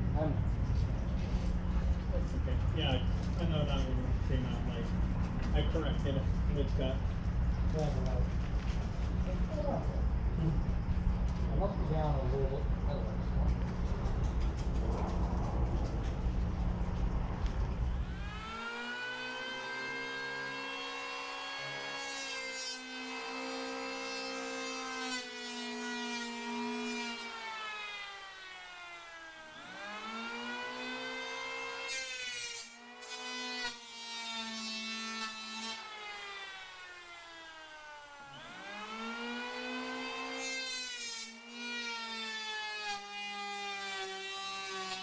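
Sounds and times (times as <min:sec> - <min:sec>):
low rumble: 0:00.0 - 0:18.2
electric planer motor whine: 0:17.9 - 0:45.0.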